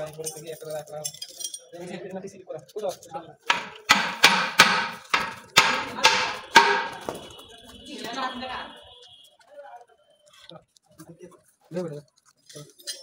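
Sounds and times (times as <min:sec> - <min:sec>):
hammer striking metal: 0:03.5 - 0:07.2.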